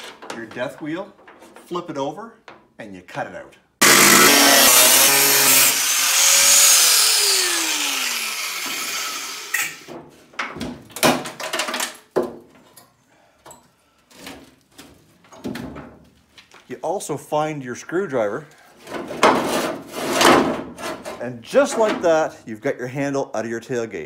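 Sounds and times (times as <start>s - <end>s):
angle grinder cutting metal: 3.8s - 9.9s
metal knocks and scrapes: 18.8s - 22.0s.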